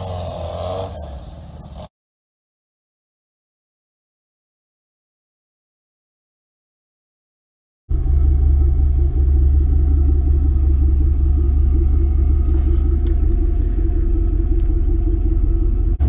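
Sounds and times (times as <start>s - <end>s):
vehicle engine rumbling: 0.0s - 1.9s, 7.9s - 16.0s.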